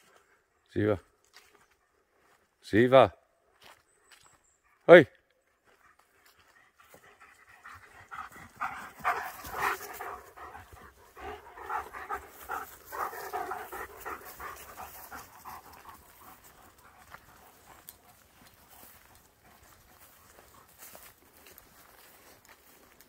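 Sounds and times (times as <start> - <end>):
dog panting: 5.7 - 21.6.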